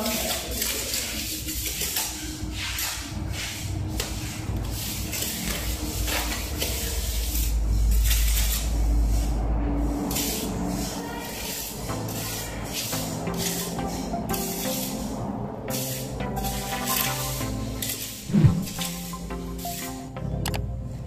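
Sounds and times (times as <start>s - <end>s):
trowel scraping wet plaster: 0.0s - 8.8s, 15.7s - 19.1s.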